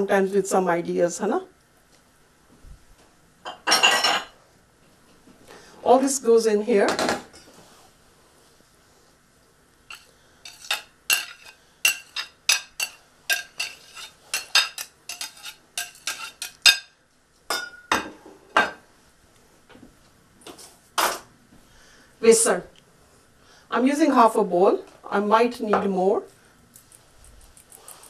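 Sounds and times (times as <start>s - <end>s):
metal spoon scraping into steel bowl: 9.9s - 16.7s.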